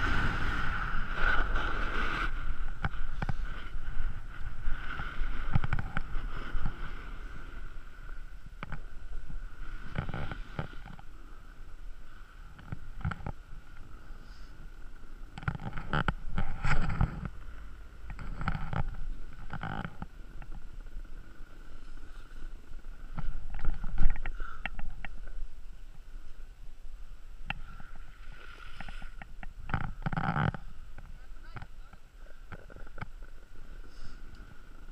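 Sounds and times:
ski edges scraping snow: 0.0 - 8.3
wind rumble on microphone: 0.0 - 34.9.

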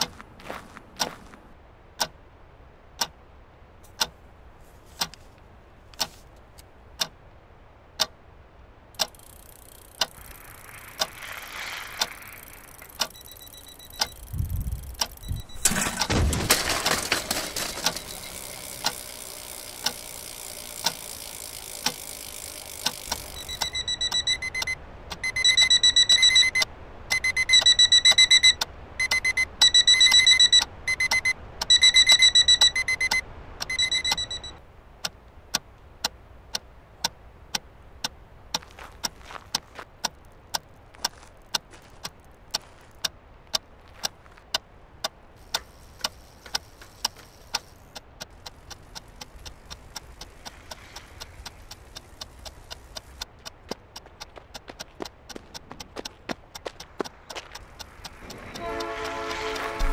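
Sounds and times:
clock ticking: 4.0 - 4.2, 7.0 - 7.2, 9.0 - 59.9
alarm clock beeping: 12.0 - 34.6.

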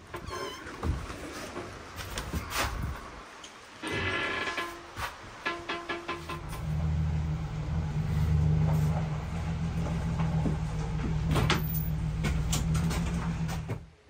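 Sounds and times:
car engine humming: 6.2 - 14.0.

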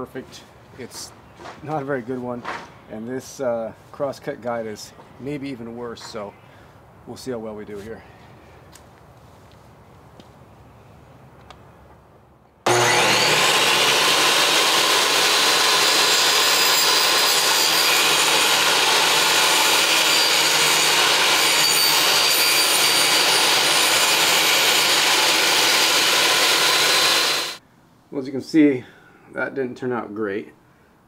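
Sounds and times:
table saw cutting wood: 12.7 - 27.6.

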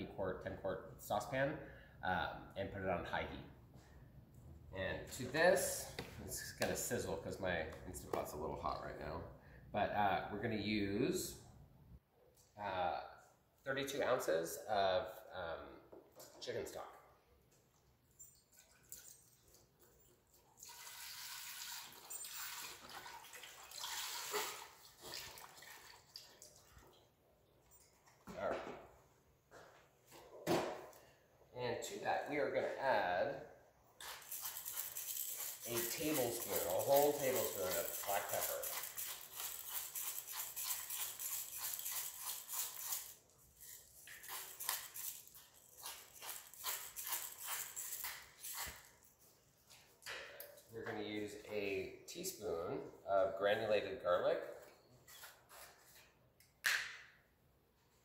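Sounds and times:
liquid pouring into metal pot: 18.3 - 27.1
pepper mill grinding: 34.0 - 49.0.

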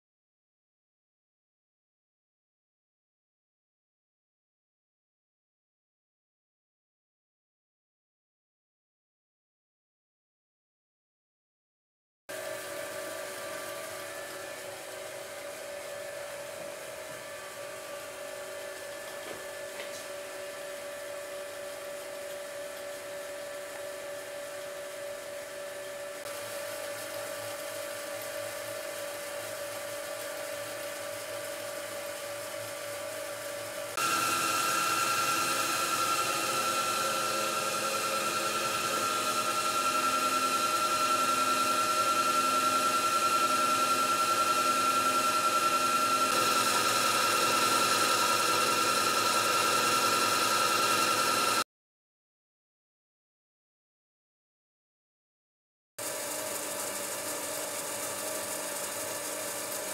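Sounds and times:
machine tool motor humming: 12.3 - 51.6.

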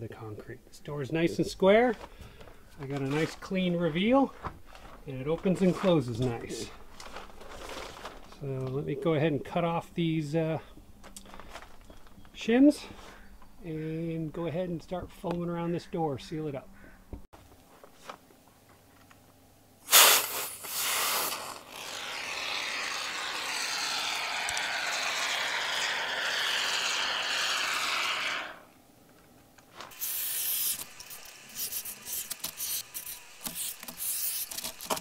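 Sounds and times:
handling noises: 1.6 - 8.8, 10.7 - 13.6, 17.4 - 19.4
spray foam can hissing: 19.9 - 28.7, 29.9 - 35.0.

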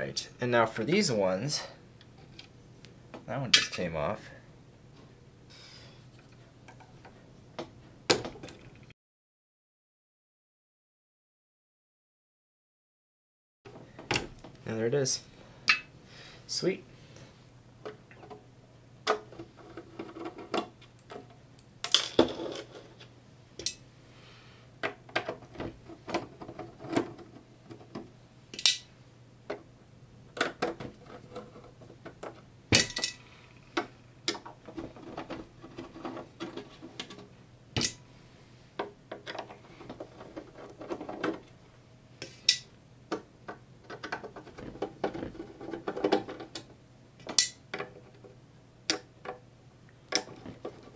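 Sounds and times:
metal parts clinking into tray: 32.8 - 33.3.

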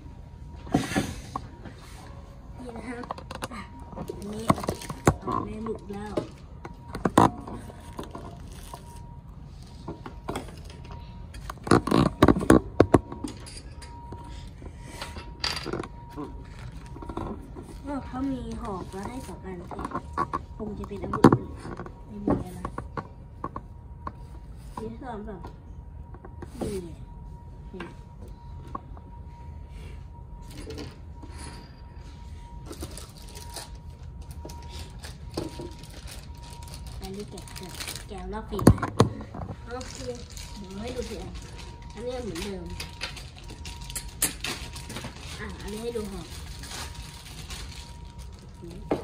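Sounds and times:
plastic bags crinkling: 32.7 - 38.6, 39.6 - 48.9.

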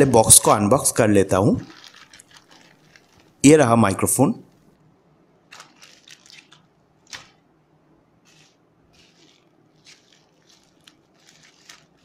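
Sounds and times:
plastic packaging crinkling: 0.0 - 4.7, 5.4 - 7.6, 8.2 - 12.0.

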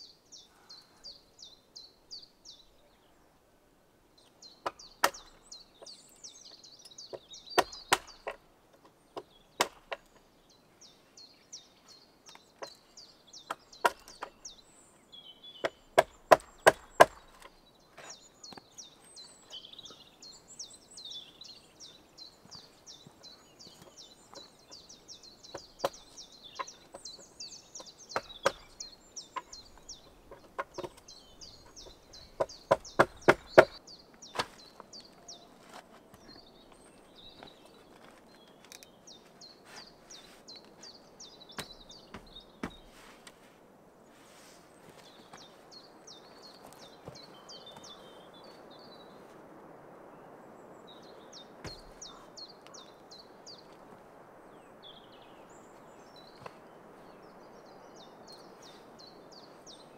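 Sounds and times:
sharp strikes on wood: 4.6 - 5.4, 7.6 - 8.4, 9.2 - 10.1, 15.6 - 17.5, 28.2 - 28.8, 32.4 - 34.6
bird chirping rapidly: 15.3 - 34.6.

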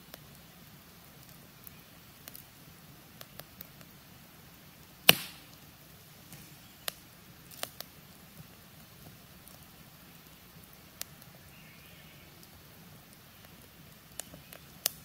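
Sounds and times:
campfire crackling and popping: 0.0 - 15.0.

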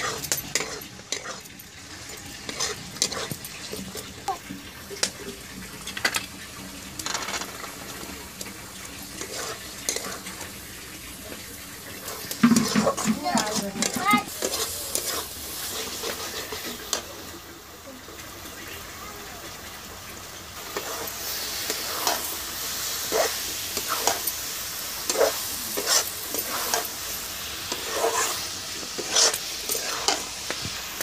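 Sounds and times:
metal spatula scraping iron pan: 0.0 - 4.1, 9.2 - 10.5, 11.9 - 16.9, 23.0 - 27.0, 27.6 - 30.7
low frying sizzle: 0.0 - 31.0.

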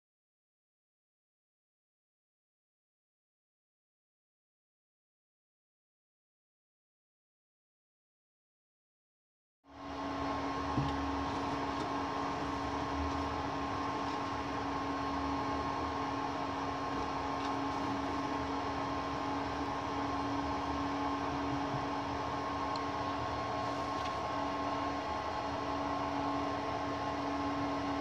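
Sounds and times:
mill motor humming whine: 9.7 - 28.0.

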